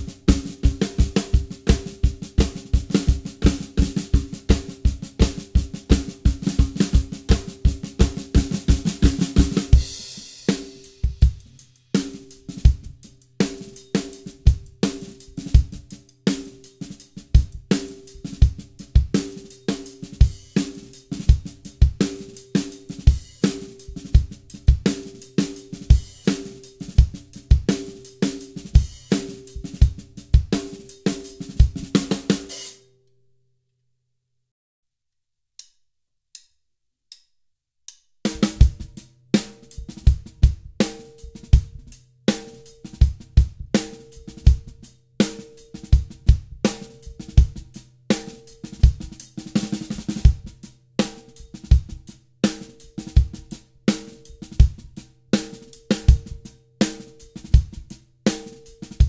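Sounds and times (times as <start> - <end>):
drum kit groove: 0.0 - 32.8, 38.2 - 59.0
faint ticks: 35.6 - 38.1.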